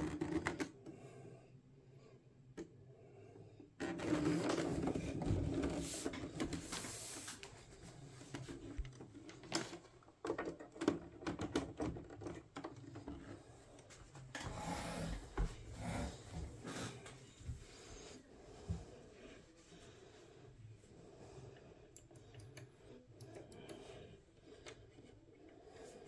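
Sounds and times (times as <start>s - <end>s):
plastic rubbing and scraping: 3.8s - 17.2s.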